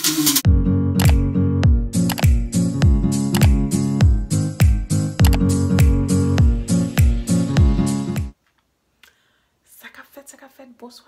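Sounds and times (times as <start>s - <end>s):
sharp clicks: 1.0s - 1.2s, 2.0s - 2.4s, 3.3s - 3.6s, 5.2s - 5.4s.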